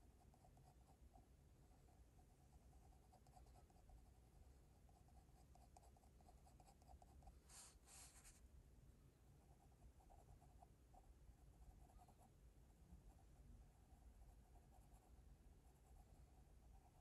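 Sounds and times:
pencil scratching on paper: 0:02.4 - 0:04.1, 0:04.8 - 0:08.4.

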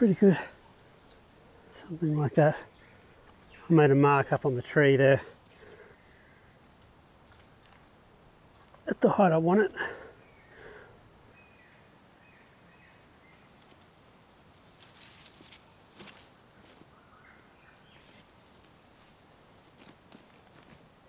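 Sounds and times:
faint bird chirps: 0:05.4 - 0:06.7, 0:10.1 - 0:13.7
wooden pole rustling through leaves: 0:13.3 - 0:17.0, 0:17.9 - 0:20.9
footsteps in dry leaves: 0:14.5 - 0:17.0.

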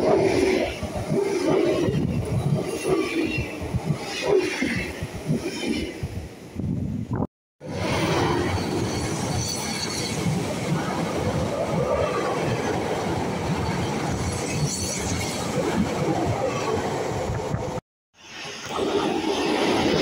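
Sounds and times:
train wheels rumbling on rail: 0:00.0 - 0:07.0, 0:07.6 - 0:17.8.

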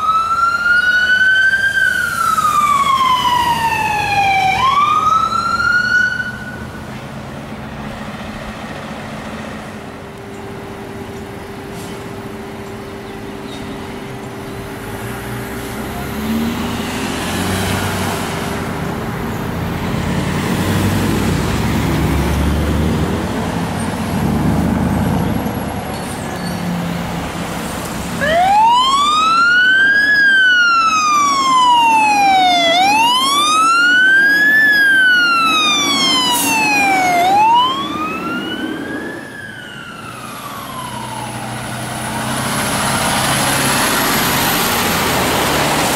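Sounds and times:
fire engine siren wailing: 0:00.0 - 0:07.0, 0:26.9 - 0:45.9
diesel engines rumbling: 0:00.0 - 0:45.9.

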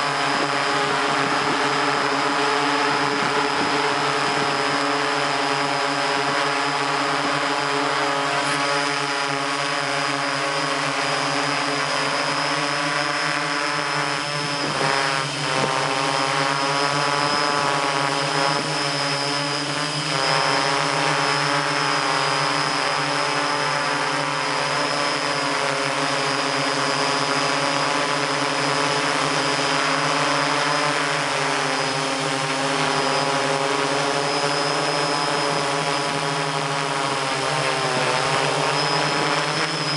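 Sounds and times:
drone motors humming: 0:00.0 - 0:39.9.

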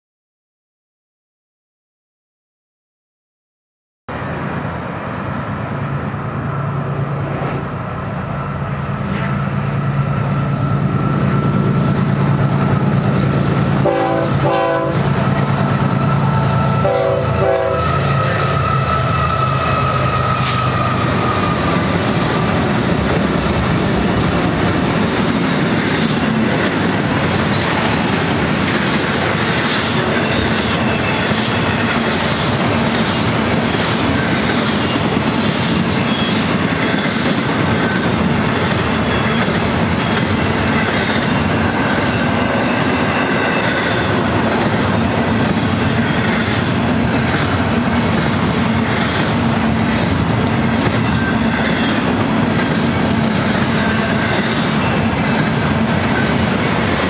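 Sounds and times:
diesel locomotives running: 0:04.1 - 0:57.0
train wheels clattering on rails: 0:09.1 - 0:57.0
train horn blasts: 0:13.8 - 0:15.2, 0:16.1 - 0:20.8.

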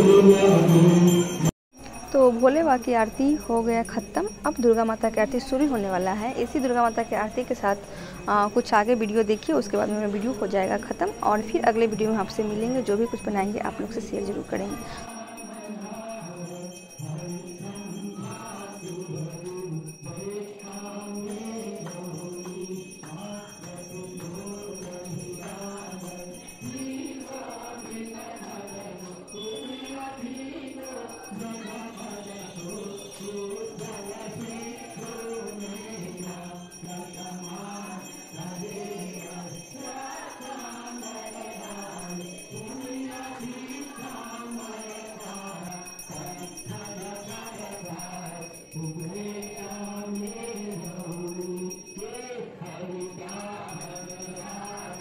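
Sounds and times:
man singing into a microphone: 0:00.0 - 0:01.5
bells ringing: 0:00.0 - 0:55.0
worshippers singing along: 0:00.0 - 0:55.0.

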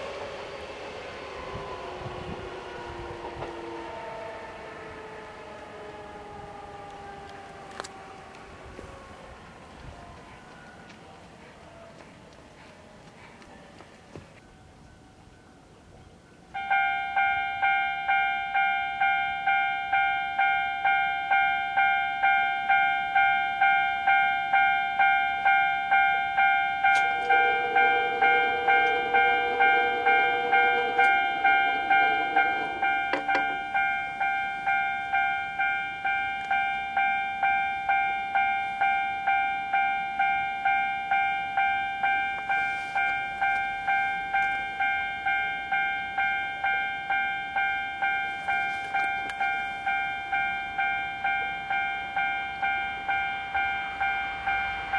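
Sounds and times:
level crossing warning bell: 0:14.4 - 0:54.9.

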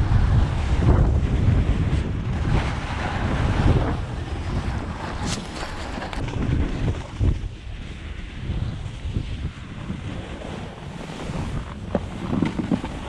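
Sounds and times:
snowboard scraping over snow: 0:00.0 - 0:13.0
wind buffeting microphone: 0:00.0 - 0:13.0.

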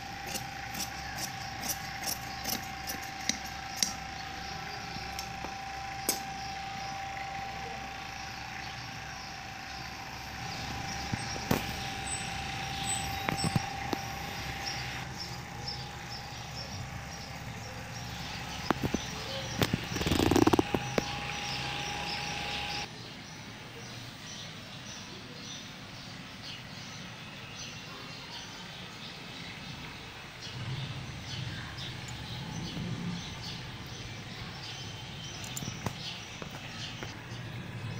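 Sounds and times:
electrical appliance hum: 0:00.0 - 0:22.9.

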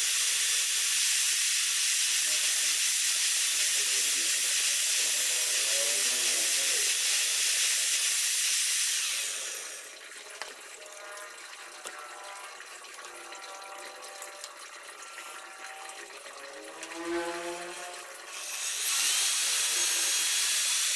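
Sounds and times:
power drill running: 0:00.0 - 0:10.0, 0:17.7 - 0:20.9.

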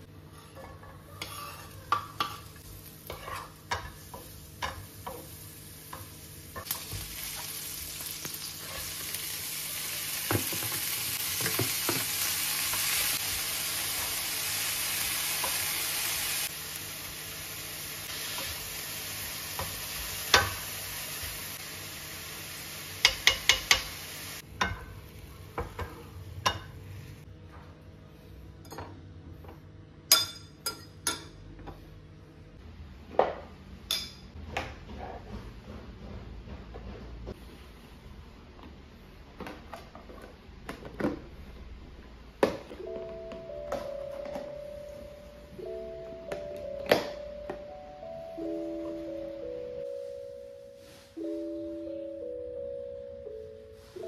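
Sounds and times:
wooden spatula scraping pan: 0:00.3 - 0:02.4, 0:03.1 - 0:03.6
vegetables sizzling in oil: 0:02.4 - 0:24.4
spatula tapping on pan: 0:23.0 - 0:23.9.

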